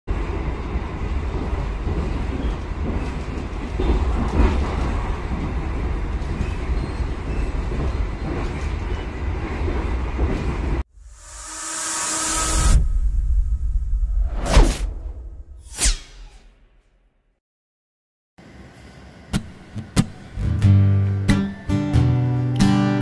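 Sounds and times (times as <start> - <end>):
train wheels rumbling on track: 0.1 - 10.8.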